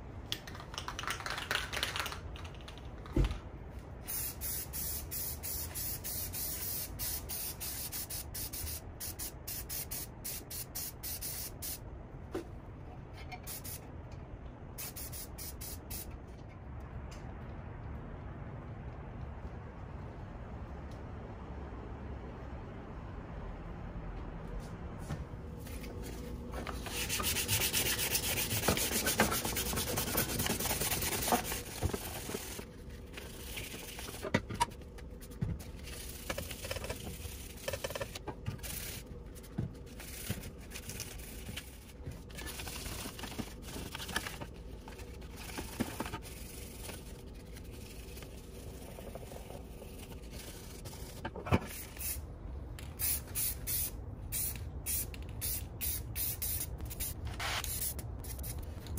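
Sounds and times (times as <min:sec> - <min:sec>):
sandpaper rubbing metal: 0:26.8 - 0:32.6.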